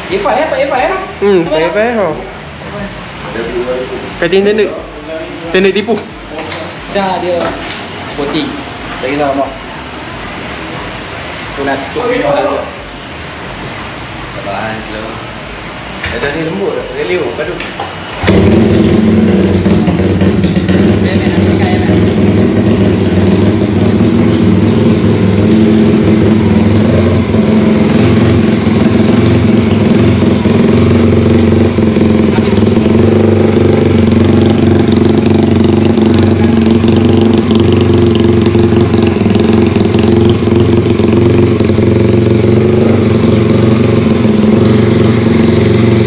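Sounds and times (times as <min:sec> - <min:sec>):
motorcycle engine running: 0:18.0 - 0:46.0.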